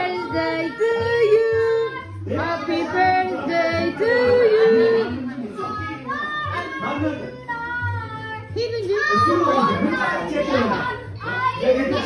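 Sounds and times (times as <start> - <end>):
woman singing: 0.0 - 9.0.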